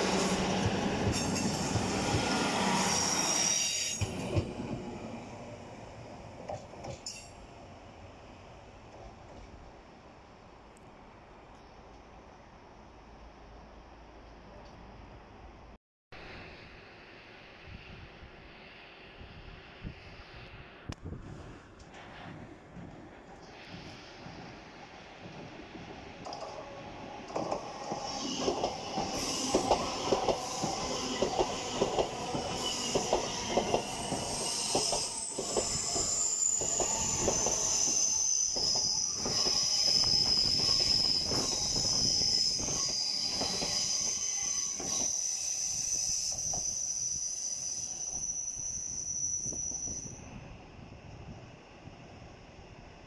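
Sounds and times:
high steady wheel squeal: 0.0 - 5.1, 26.3 - 50.6
train wheels clicking over rail joints: 21.8 - 43.8.

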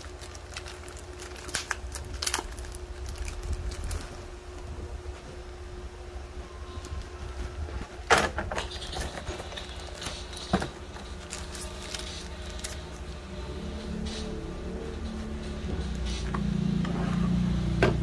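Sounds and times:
packaging rustling: 0.0 - 4.7, 6.8 - 13.2
low hum: 0.1 - 10.0, 10.8 - 18.0.

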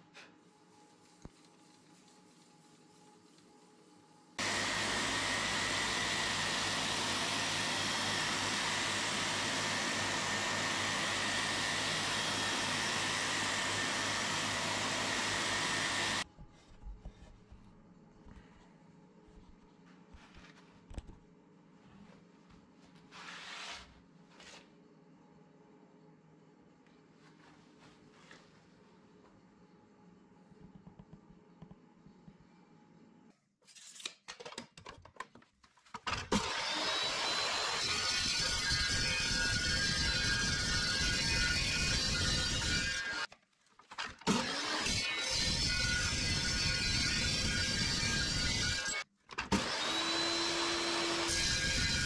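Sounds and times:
orbital sander running: 4.4 - 16.2.

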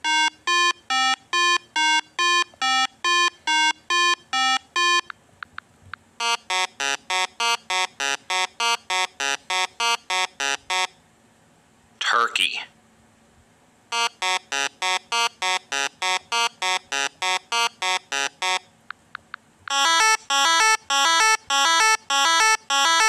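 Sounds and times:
two-pitch alarm beeping: 0.0 - 5.1, 19.7 - 23.0.

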